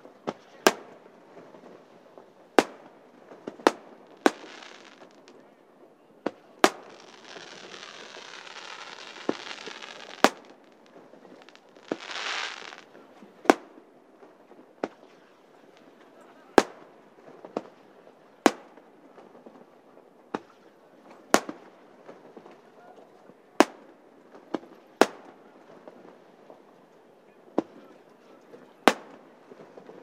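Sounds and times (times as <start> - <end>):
crackling fireworks stars: 0.0 - 30.0
fireworks bangs: 0.2 - 5.4, 6.2 - 17.8, 28.7 - 30.0
fireworks pops: 0.2 - 5.4, 6.2 - 17.8, 18.4 - 19.6, 20.3 - 22.6, 23.6 - 26.6, 28.8 - 30.0.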